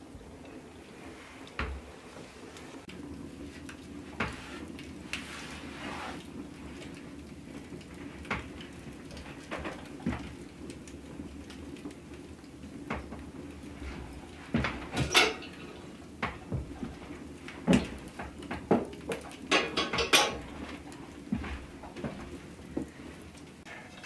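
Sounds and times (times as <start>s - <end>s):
wood fire crackling: 0.0s - 24.0s.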